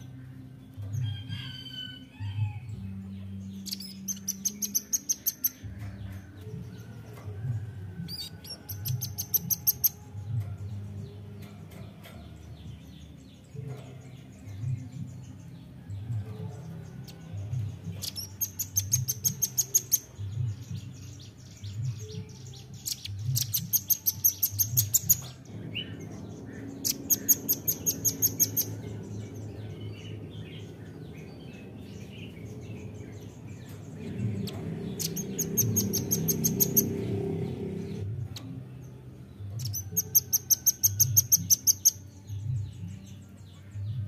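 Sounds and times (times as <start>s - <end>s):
bird trilling high-pitched: 26.6s - 28.7s, 39.6s - 42.0s.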